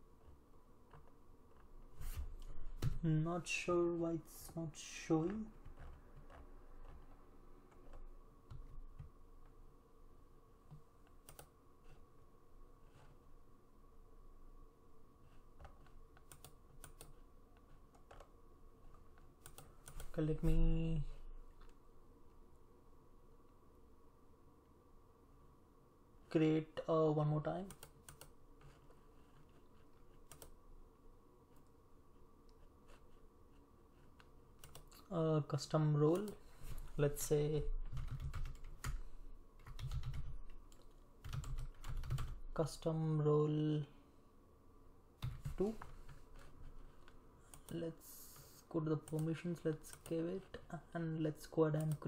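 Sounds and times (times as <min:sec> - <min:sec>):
faint steady hum: 0:00.0 - 0:52.0
keyboard and mouse clicks: 0:10.7 - 0:11.6, 0:15.6 - 0:18.3, 0:18.9 - 0:20.2, 0:27.6 - 0:30.6, 0:34.1 - 0:35.1
sharp computer clicks: 0:34.6 - 0:35.1.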